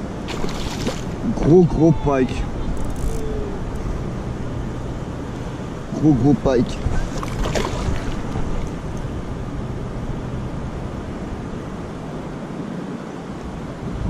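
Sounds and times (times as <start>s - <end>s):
water lapping: 0.0s - 10.0s
wind buffeting microphone: 0.0s - 14.0s.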